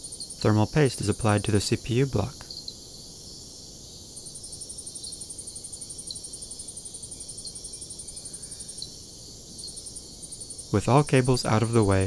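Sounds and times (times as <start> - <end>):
faint steady hiss: 0.0 - 12.0
faint ticks: 6.0 - 6.2.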